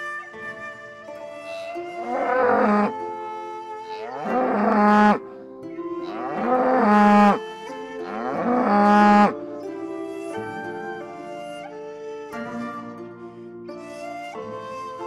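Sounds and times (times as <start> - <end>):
soft flute music: 0.0 - 15.0
cow mooing: 2.0 - 2.9, 3.9 - 5.2, 6.0 - 7.4, 8.0 - 9.3.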